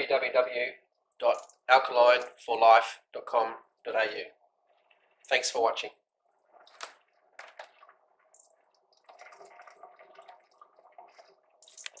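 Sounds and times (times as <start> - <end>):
water trickling and splashing: 4.4 - 12.0.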